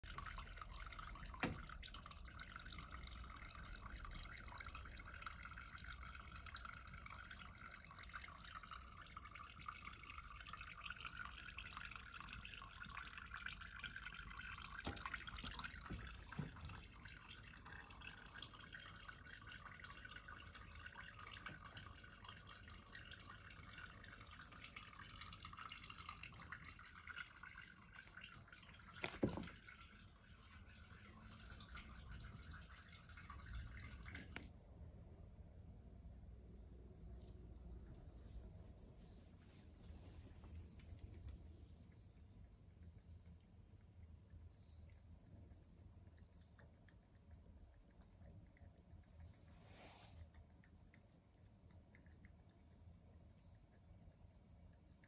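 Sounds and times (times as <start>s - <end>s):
tap water trickling into sink: 0.0s - 34.6s.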